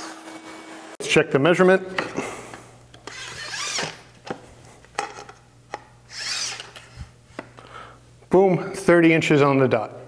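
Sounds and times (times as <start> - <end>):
tape blade scraping along board: 3.1 - 4.0, 6.1 - 6.8.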